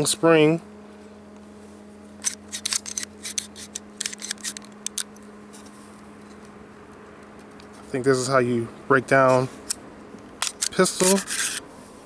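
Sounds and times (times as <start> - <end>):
pistol slide metallic clicks: 2.2 - 5.2, 10.4 - 10.8.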